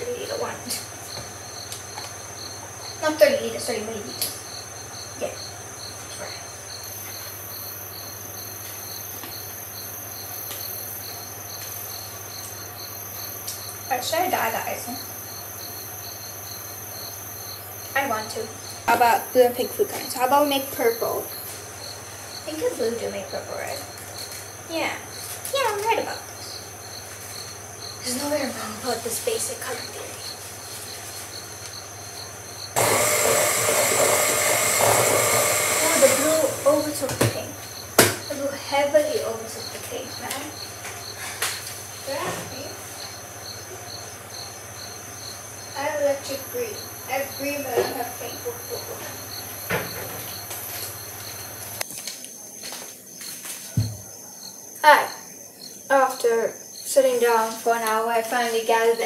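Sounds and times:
crickets chirping: 0:00.0 - 0:59.0
high steady tone: 0:32.8 - 0:37.1
electric hand mixer running: 0:32.8 - 0:37.3.

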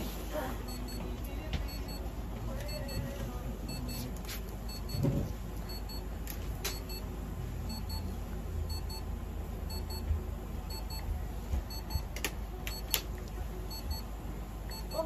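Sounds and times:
low steady hum: 0:00.0 - 0:15.0
electronic device beeping: 0:00.7 - 0:01.1, 0:01.7 - 0:03.1, 0:03.7 - 0:04.1, 0:04.7 - 0:05.0, 0:05.7 - 0:06.1, 0:06.7 - 0:07.0, 0:07.7 - 0:08.1, 0:08.7 - 0:09.1, 0:09.7 - 0:10.1, 0:10.7 - 0:11.1, 0:11.7 - 0:12.1, 0:13.7 - 0:14.1, 0:14.7 - 0:15.0.

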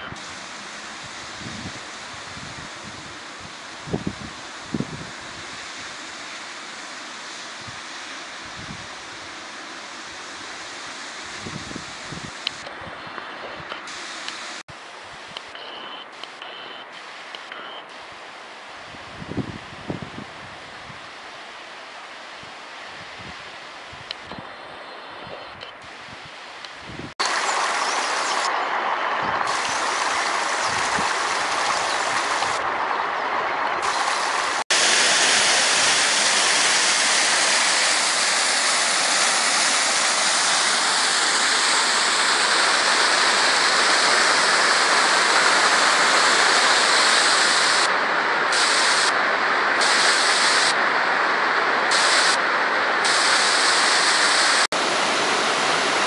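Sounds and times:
flowing water rushing: 0:00.0 - 0:15.2, 0:25.8 - 0:56.0.

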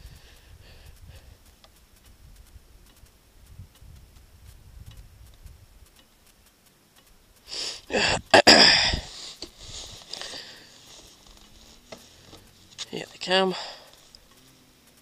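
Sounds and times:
faint low wind rumble: 0:00.0 - 0:15.0
loud rushing sniff: 0:07.5 - 0:08.2.

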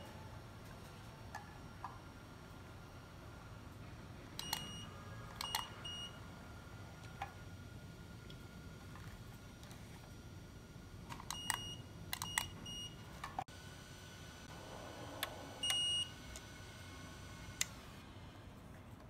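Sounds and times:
electronic buzzer beeps: 0:15.6 - 0:16.2.

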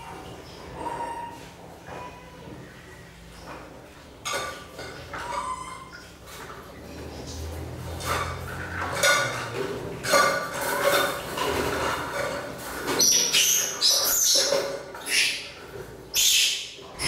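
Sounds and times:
water splashing in a basin: 0:03.4 - 0:16.1.

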